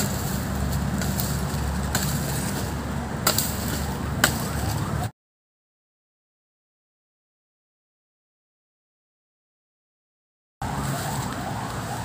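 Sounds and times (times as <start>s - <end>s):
steady low rumble: 0.0s - 5.1s.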